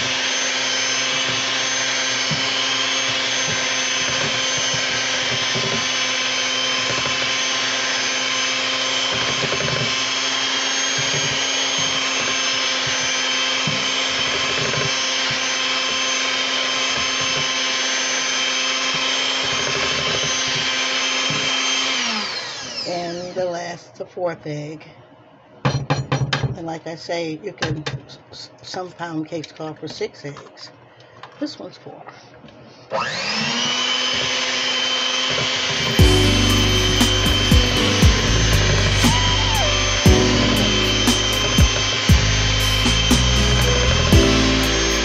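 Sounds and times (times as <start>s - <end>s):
electric hand mixer whining: 0.0s - 23.4s, 32.9s - 45.0s.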